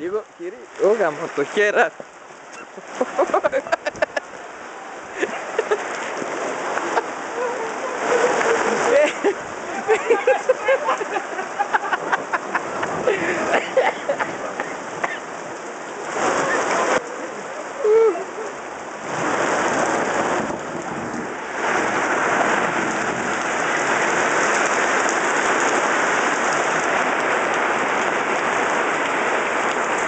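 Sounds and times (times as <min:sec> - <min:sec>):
rain falling: 0:00.0 - 0:30.0.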